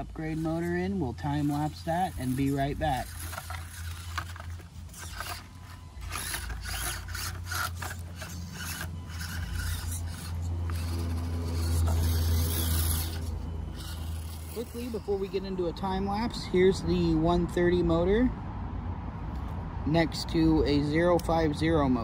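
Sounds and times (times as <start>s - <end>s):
tyres scrabbling on stone: 0.0s - 15.3s
toy motor and gears whirring: 0.0s - 16.3s.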